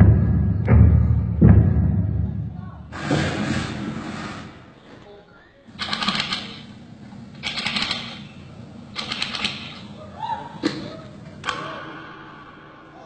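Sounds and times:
rapid clicking bursts: 5.8s - 6.7s, 7.3s - 8.3s, 8.9s - 9.9s.

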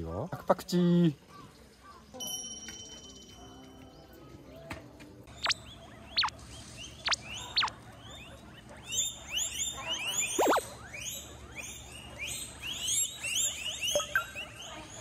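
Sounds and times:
guinea pigs squealing: 5.3s - 15.0s.

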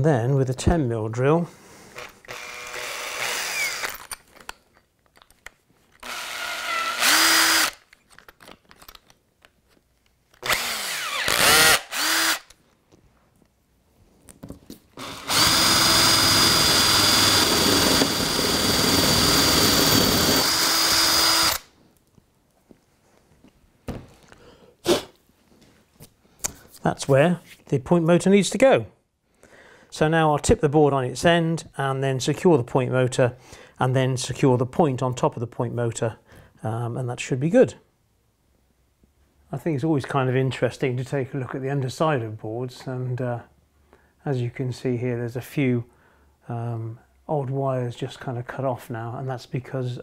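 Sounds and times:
cordless drill boring: 1.9s - 4.1s, 6.0s - 7.8s, 10.4s - 12.6s, 15.0s - 21.7s.

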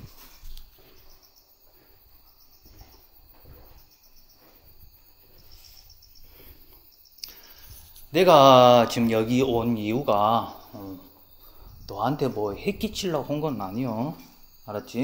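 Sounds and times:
soft footsteps: 0.0s - 6.2s
crickets chirping: 0.0s - 15.0s.

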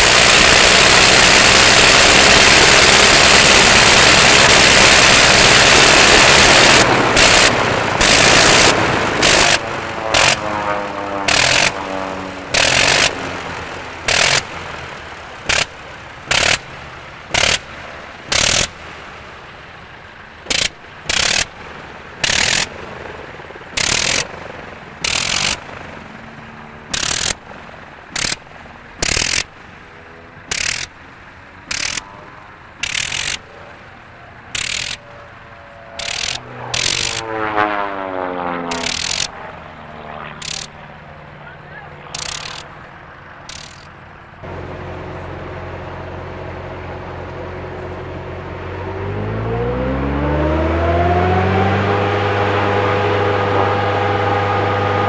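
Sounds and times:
aircraft engine running: 0.0s - 55.0s.

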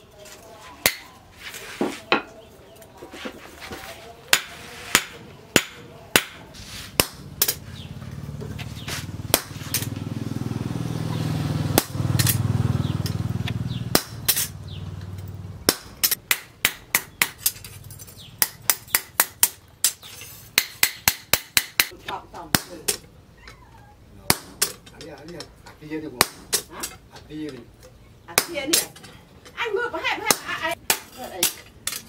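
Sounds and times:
hammer striking steel on anvil: 4.3s - 7.6s.

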